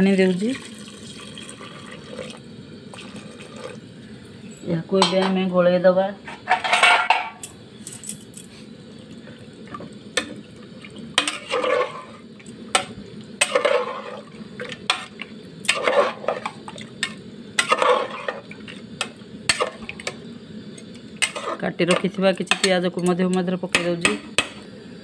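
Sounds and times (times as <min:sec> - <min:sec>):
ladle clinking and scraping pot: 0:06.4 - 0:08.3, 0:11.2 - 0:20.2, 0:21.2 - 0:22.8
ladle stirring wet food: 0:09.1 - 0:20.2, 0:20.8 - 0:23.9.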